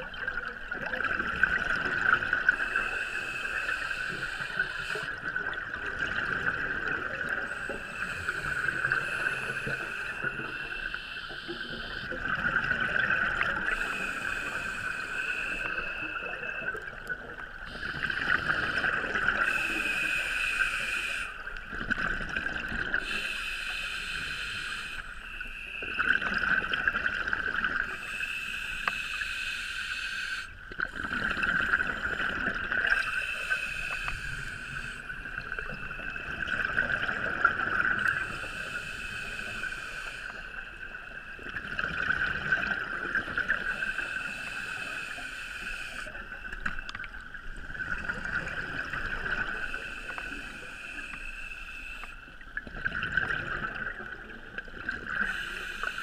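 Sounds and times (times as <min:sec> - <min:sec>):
gurgling bubbles: 0:00.0 - 0:20.3, 0:21.4 - 0:23.3, 0:25.6 - 0:28.1, 0:30.7 - 0:45.0, 0:46.0 - 0:50.6, 0:52.4 - 0:55.9
steady high-pitched hum: 0:00.0 - 0:52.4
diver breathing through regulator: 0:02.5 - 0:05.4, 0:06.2 - 0:17.0, 0:17.7 - 0:21.5, 0:22.9 - 0:26.2, 0:27.8 - 0:36.3, 0:37.0 - 0:40.9, 0:42.9 - 0:46.4, 0:48.1 - 0:52.2, 0:55.1 - 0:56.0.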